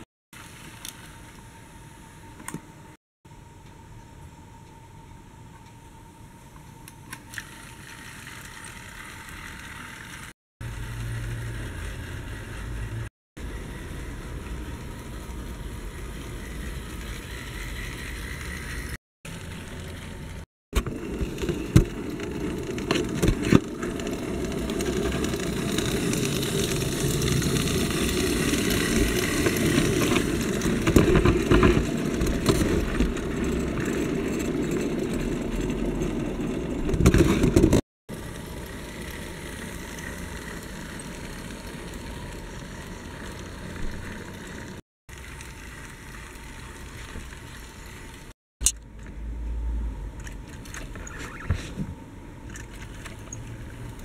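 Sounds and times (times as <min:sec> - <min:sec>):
small electric motor whirring: 0:07.3 - 0:20.5
wheels rattling on rails: 0:08.0 - 0:48.3.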